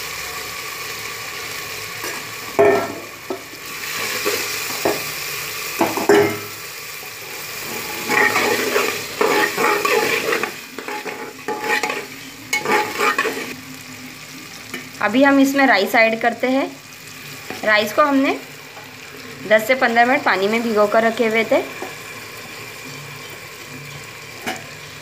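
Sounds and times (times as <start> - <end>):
vegetables sizzling in oil: 0.0 - 25.0
metal spoon scraping pot: 7.6 - 13.6.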